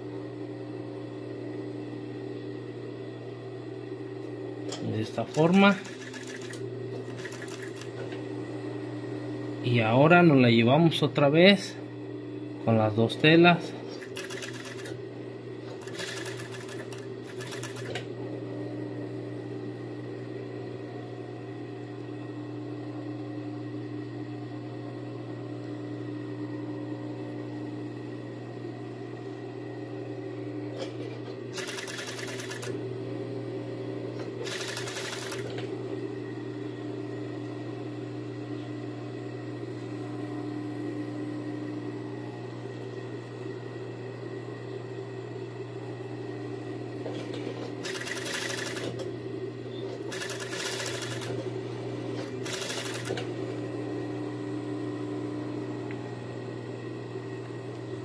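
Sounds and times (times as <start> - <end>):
industrial sewing machine running: 5.0 - 8.0, 13.9 - 15.0, 15.7 - 18.1, 31.5 - 32.8, 34.4 - 35.6, 47.8 - 49.1, 50.0 - 51.6, 52.2 - 53.3.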